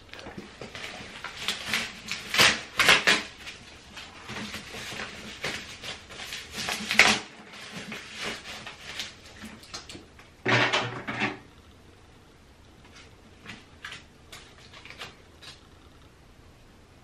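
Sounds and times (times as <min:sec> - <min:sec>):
paper rustling and crinkling: 0:00.1 - 0:10.1, 0:12.8 - 0:15.6.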